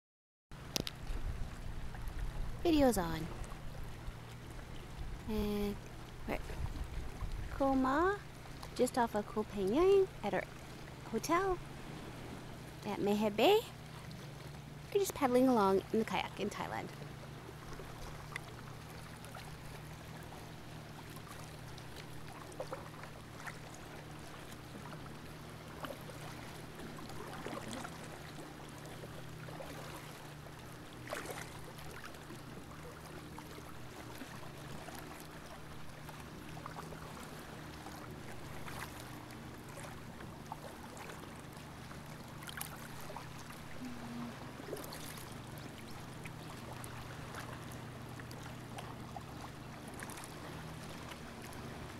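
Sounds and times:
steady low hum: 0.6s - 51.9s
kayak paddle splashing in water: 16.9s - 51.9s.

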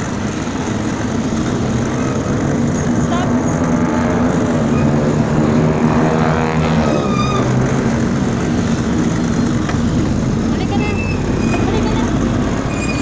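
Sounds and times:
steady traffic noise: 0.0s - 13.0s
vehicle engine running: 0.0s - 13.0s.

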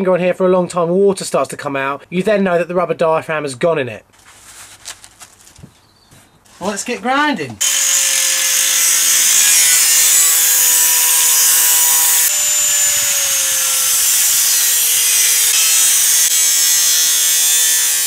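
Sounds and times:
angle grinder cutting metal: 7.6s - 18.0s.

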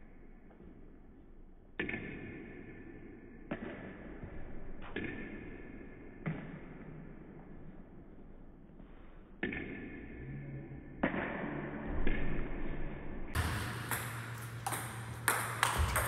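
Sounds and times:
table tennis ball hits: 1.8s - 2.8s, 9.4s - 10.2s, 13.4s - 16.0s.

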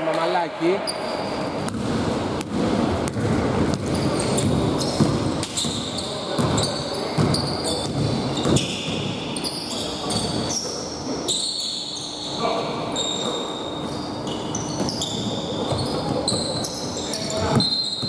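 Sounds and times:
sneaker squeaks: 0.8s - 1.8s, 3.7s - 18.0s
basketball bouncing on hardwood: 1.7s - 5.8s, 7.2s - 9.1s.

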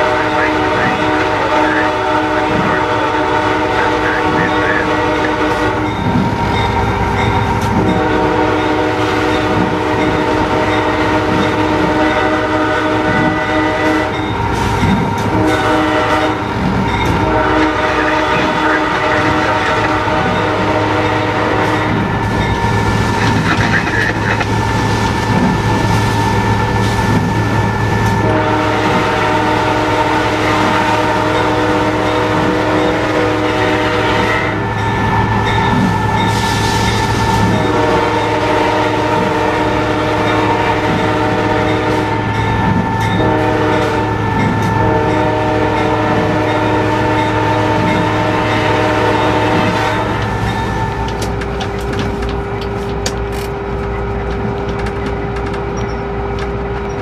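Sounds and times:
locomotive air horn blasts: 0.0s - 6.0s, 7.8s - 14.2s, 15.3s - 22.1s, 28.2s - 34.7s, 37.4s - 50.5s
locomotive rumble: 0.0s - 57.0s.

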